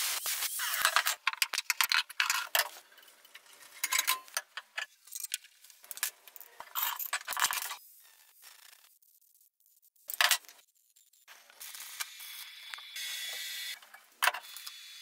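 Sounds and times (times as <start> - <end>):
metal chair parts clinking and rattling: 1.2 - 7.7.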